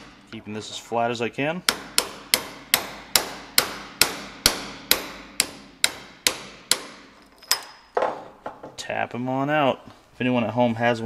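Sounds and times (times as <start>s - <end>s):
hammer knocking on metal socket: 1.7s - 8.7s.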